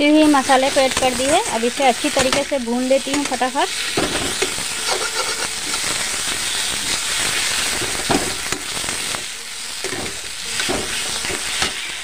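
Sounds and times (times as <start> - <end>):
onions sizzling in hot oil: 0.0 - 12.0
spatula scraping a steel pan: 4.3 - 5.9.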